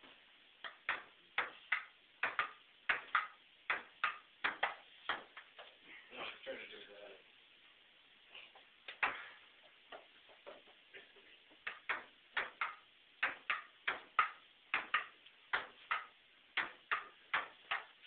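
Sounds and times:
ping-pong ball clicking: 0.6s - 5.5s, 11.6s - 17.9s.

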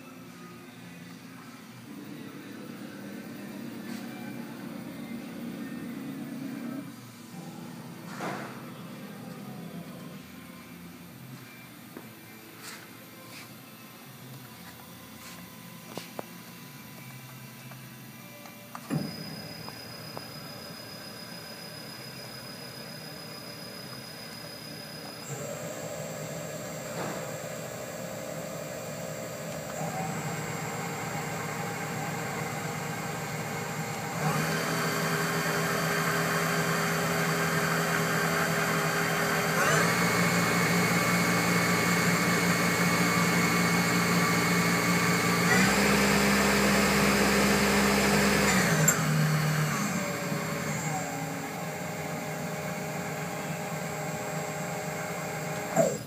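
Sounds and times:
lathe spindle whining: 18.7s - 56.0s.

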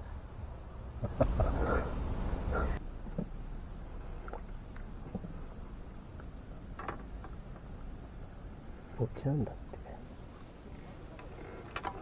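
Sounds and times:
man laughing: 1.0s - 1.9s.

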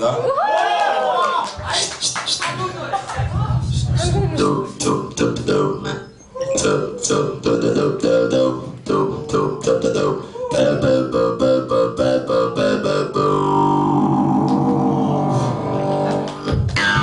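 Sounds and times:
talkbox synth notes: 4.4s - 17.0s.

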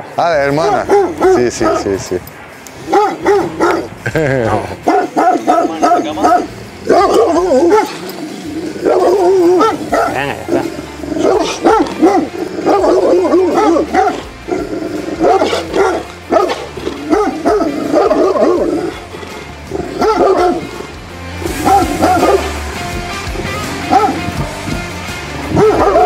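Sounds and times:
dog barking: 0.5s - 2.2s, 2.8s - 3.9s, 4.8s - 8.1s, 8.8s - 19.0s, 19.7s - 20.7s, 21.6s - 22.5s, 23.9s - 24.4s, 25.5s - 26.0s.

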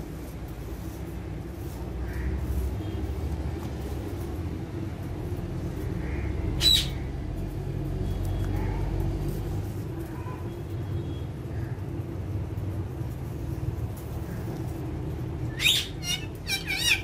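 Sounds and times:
parakeet squawk: 6.0s - 7.1s, 15.5s - 17.0s.

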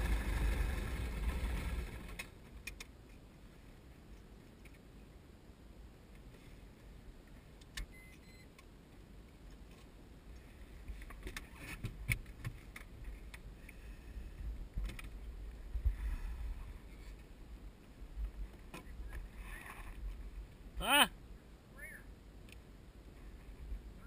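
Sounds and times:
steady low rumble: 12.9s - 19.4s.

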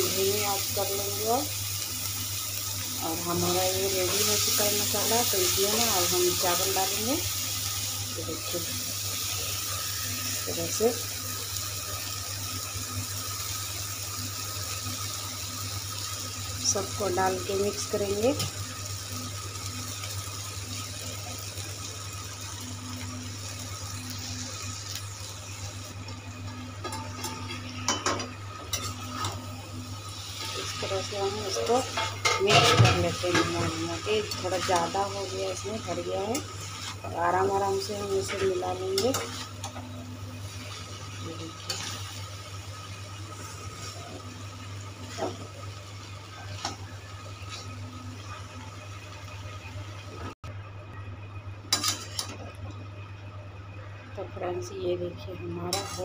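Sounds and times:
low hum and hiss of cooking rice: 0.0s - 56.0s
metal tongs clinking on pan: 31.6s - 33.6s, 38.1s - 39.8s, 55.7s - 56.0s.

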